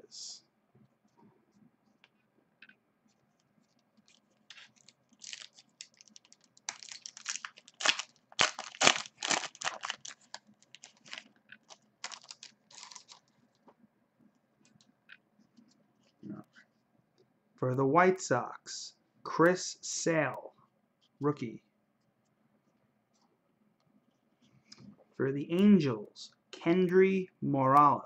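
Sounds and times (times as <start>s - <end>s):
foil wrapper crinkling and tearing: 4.0s - 13.3s.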